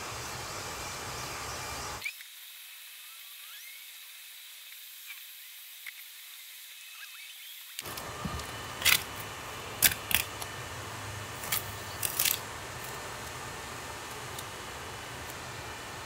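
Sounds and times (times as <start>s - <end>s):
steady low hum: 0.0s - 2.0s, 7.8s - 16.0s
tape being peeled off wood: 7.8s - 10.5s, 11.4s - 13.4s.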